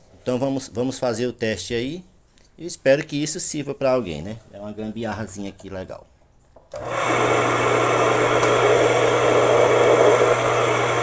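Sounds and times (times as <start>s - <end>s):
washing machine motor humming: 6.7s - 11.0s.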